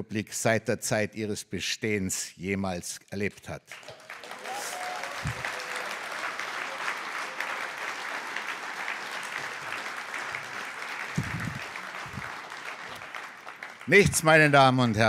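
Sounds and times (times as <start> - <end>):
audience applauding: 3.7 - 15.0.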